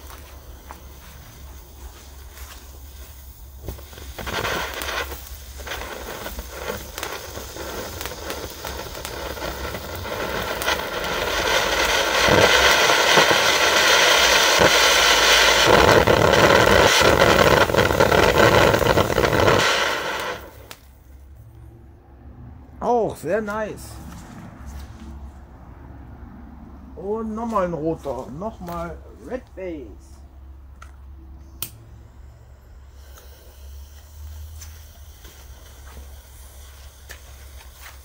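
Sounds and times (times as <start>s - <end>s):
firework fountain sparks hissing: 0.0s - 21.3s, 32.0s - 38.0s.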